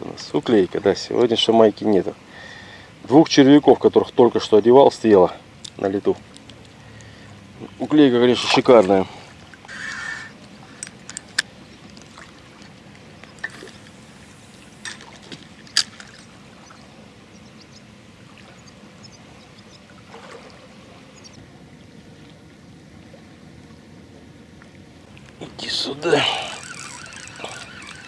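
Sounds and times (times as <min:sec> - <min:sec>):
water lapping at bank: 0:00.0 - 0:28.0
fishing reel clicks: 0:26.0 - 0:28.0.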